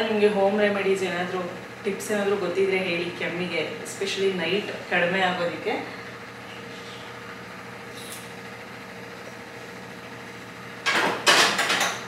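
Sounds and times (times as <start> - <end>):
kitchen appliance humming: 0.0 - 12.0.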